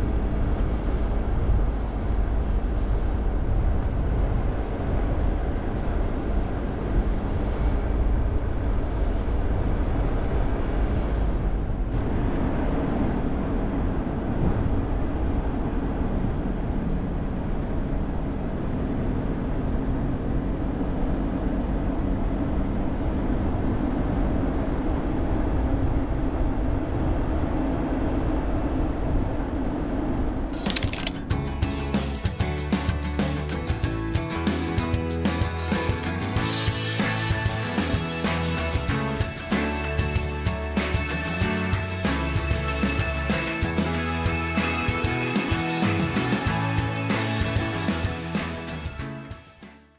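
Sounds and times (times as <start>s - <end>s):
car engine and tyre road noise: 0.0s - 37.2s.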